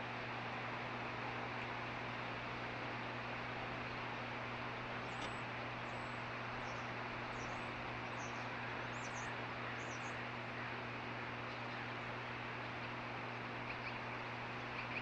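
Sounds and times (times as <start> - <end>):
low steady hum: 0.0 - 15.0
bird chirping calls: 5.1 - 10.3, 13.6 - 15.0.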